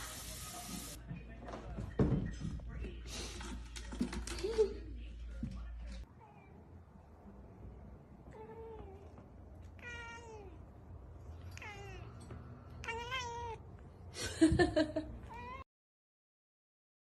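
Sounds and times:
cat meowing: 0:09.8 - 0:10.6, 0:11.4 - 0:12.2, 0:12.8 - 0:13.6, 0:15.3 - 0:15.6.

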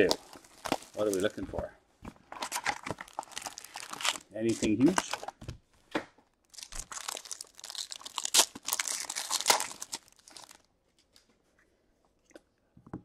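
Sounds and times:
foil wrapper crinkling and tearing: 0:00.0 - 0:01.4, 0:02.4 - 0:05.4, 0:06.4 - 0:10.7.

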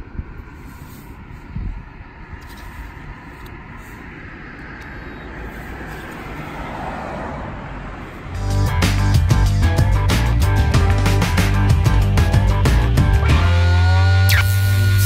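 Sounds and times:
street traffic noise: 0:00.0 - 0:15.0
vehicle passing: 0:00.4 - 0:13.0.

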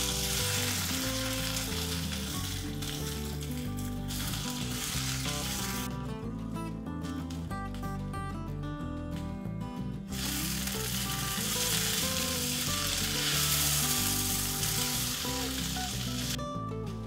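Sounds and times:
vegetables sizzling in a pot: 0:00.0 - 0:05.9, 0:10.1 - 0:16.4
guitar music: 0:00.0 - 0:17.0.

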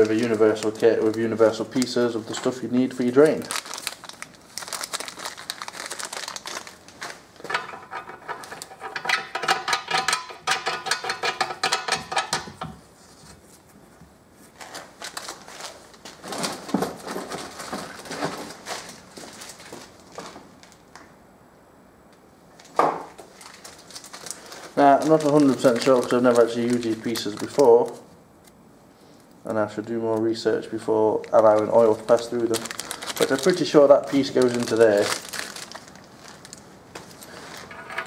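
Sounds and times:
paper towel crinkling: 0:00.0 - 0:07.5, 0:13.0 - 0:20.8, 0:23.2 - 0:28.1, 0:31.0 - 0:37.8
metal fittings clicking and scraping: 0:07.5 - 0:12.4.

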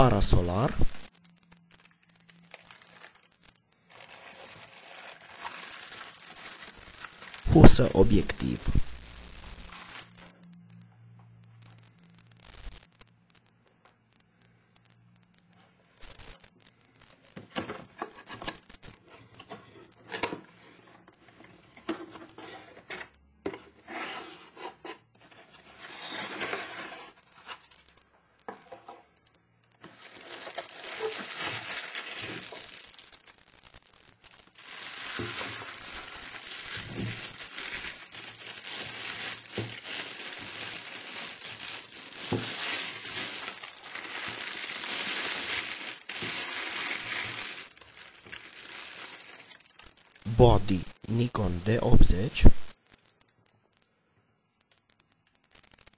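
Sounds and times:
plastic bag crinkling: 0:01.1 - 0:10.4, 0:24.5 - 0:50.3
cardboard packaging being handled: 0:01.8 - 0:10.1, 0:17.3 - 0:29.1, 0:29.8 - 0:50.2.

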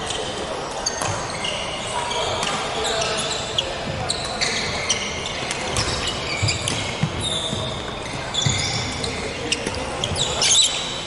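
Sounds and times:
shoes squeaking on wooden floor: 0:00.8 - 0:11.0.

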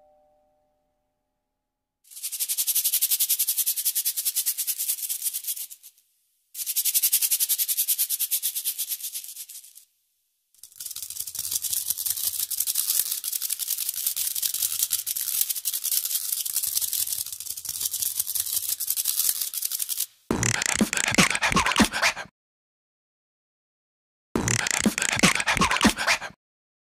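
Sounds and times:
shakers rattling: 0:02.1 - 0:06.0, 0:06.6 - 0:09.9, 0:10.6 - 0:22.2, 0:24.6 - 0:26.3
beatboxing: 0:20.3 - 0:22.3, 0:24.4 - 0:26.4.

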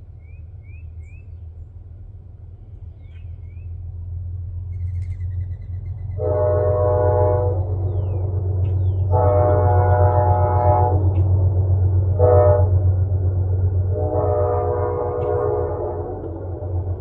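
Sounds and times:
low rumble: 0:00.0 - 0:17.0
train air horn blasts: 0:06.1 - 0:17.0.

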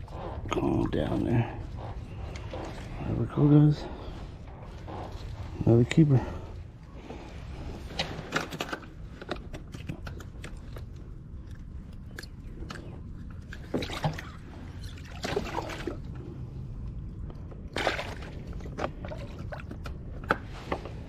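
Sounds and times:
fishing gear clicks and knocks: 0:07.8 - 0:11.0
water splashes and drips: 0:13.5 - 0:16.2, 0:17.6 - 0:19.9.

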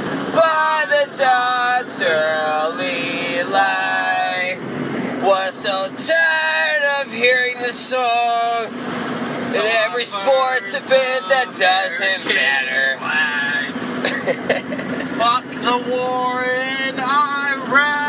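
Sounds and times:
steady background noise: 0:00.0 - 0:18.0.

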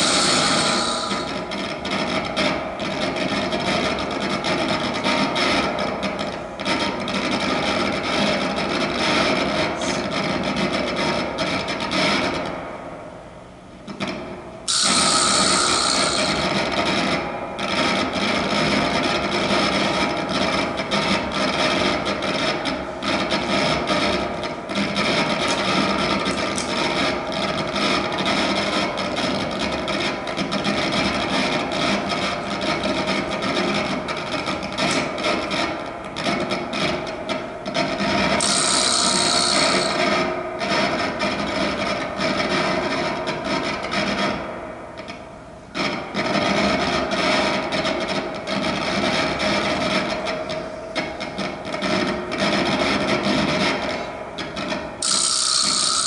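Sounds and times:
steady drone: 0:00.0 - 0:01.8, 0:14.7 - 0:17.2.

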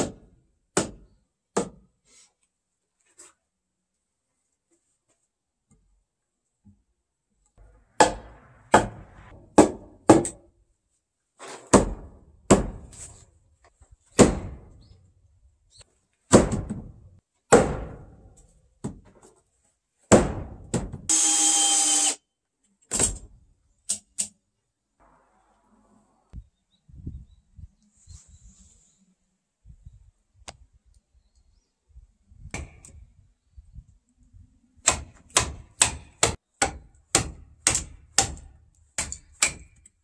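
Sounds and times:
wooden mallet striking timber: 0:08.0 - 0:10.4, 0:11.7 - 0:12.9, 0:16.3 - 0:18.1, 0:34.8 - 0:39.8.

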